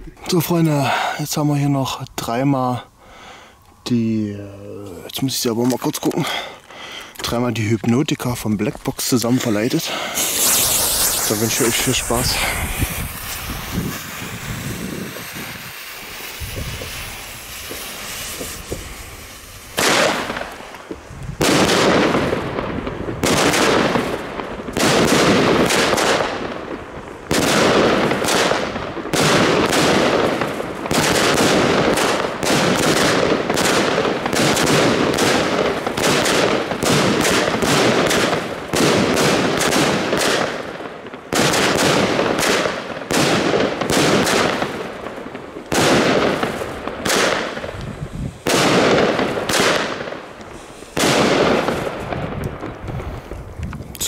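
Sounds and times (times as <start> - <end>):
fireworks cracking bangs: 4.9 - 54.0
fuse hissing: 9.4 - 19.8, 50.4 - 51.0.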